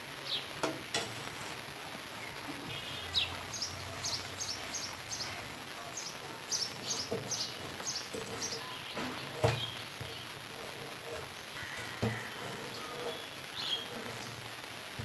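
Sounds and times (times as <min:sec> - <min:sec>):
metal ladle stirring in a pot: 0:06.2 - 0:15.0.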